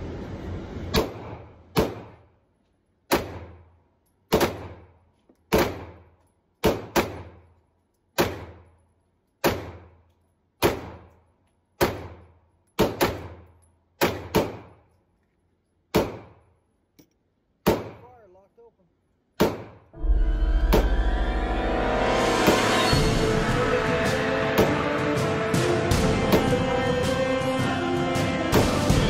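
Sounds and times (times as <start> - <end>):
pistol shots indoors: 3.1 - 14.8.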